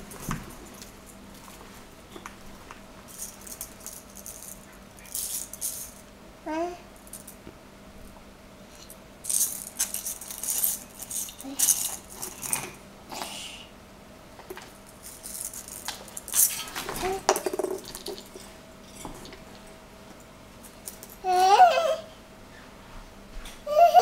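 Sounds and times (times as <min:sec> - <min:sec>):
ornament balls rattling and clinking: 0:03.1 - 0:06.0, 0:08.7 - 0:12.8, 0:14.8 - 0:19.7.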